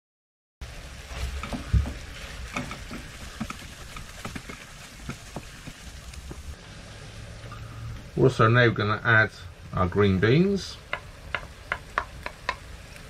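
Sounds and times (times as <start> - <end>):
meat and onion sizzling: 0.6 - 13.0
wooden spoon scraping pan: 1.0 - 5.8.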